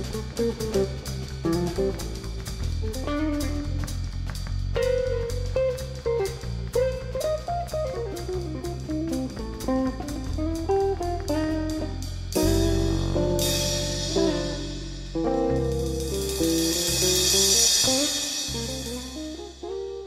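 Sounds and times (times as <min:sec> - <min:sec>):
guitar melody with bass and drums: 0:00.0 - 0:20.0
cymbal crash: 0:16.0 - 0:19.7.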